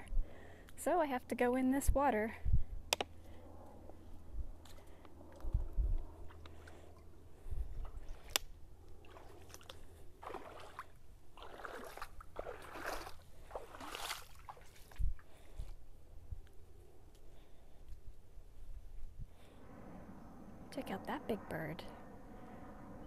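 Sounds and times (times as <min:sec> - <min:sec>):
bare feet wading through water: 0:07.8 - 0:15.8.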